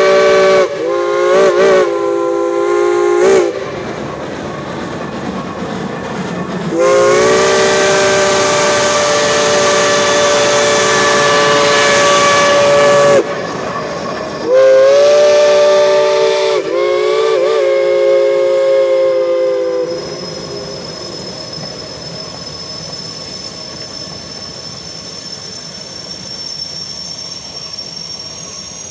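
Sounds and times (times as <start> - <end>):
steam locomotive chime whistle: 0.0 - 3.8, 6.7 - 28.9
passing train hissing and running: 0.0 - 28.9
faint high squeal: 9.5 - 14.8, 19.5 - 28.9.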